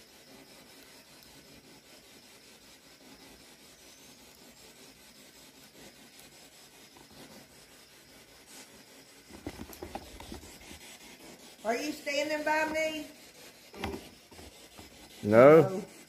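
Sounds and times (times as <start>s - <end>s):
knocks and scrapes: 5.6s - 16.0s.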